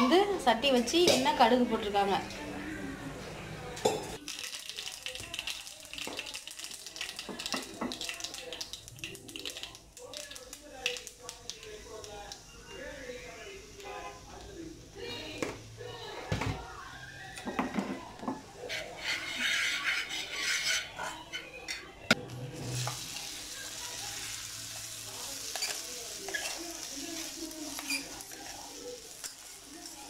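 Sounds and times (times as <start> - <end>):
oil sizzling in frying pan: 4.2 - 18.8, 22.5 - 30.0.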